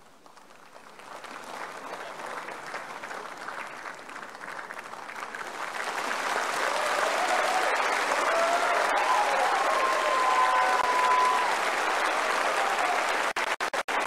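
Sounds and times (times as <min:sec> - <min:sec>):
large crowd applauding: 0:00.0 - 0:14.0.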